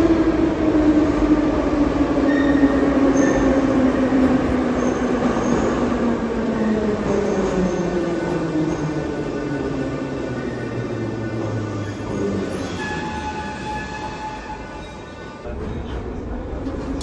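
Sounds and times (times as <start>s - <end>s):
train rumbling: 0.0s - 17.0s.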